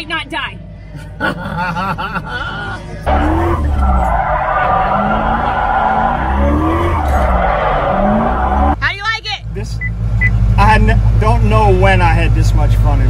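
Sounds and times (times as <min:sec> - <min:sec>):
voices in car cabin: 0:00.0 - 0:06.3, 0:08.7 - 0:13.0
car engine revving: 0:02.3 - 0:13.0
tyres squealing: 0:03.1 - 0:08.8.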